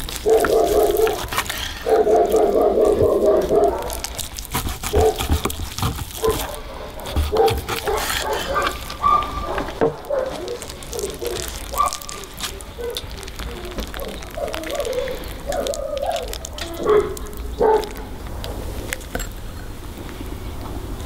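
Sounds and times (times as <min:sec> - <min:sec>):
knife sawing through meat: 0:00.3 - 0:09.0.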